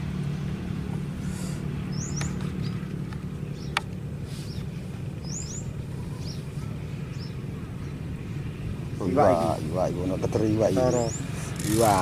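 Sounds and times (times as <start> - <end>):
steady low hum: 0.0 - 12.0
small bird chirping: 1.9 - 2.8, 3.4 - 8.1, 10.6 - 12.0.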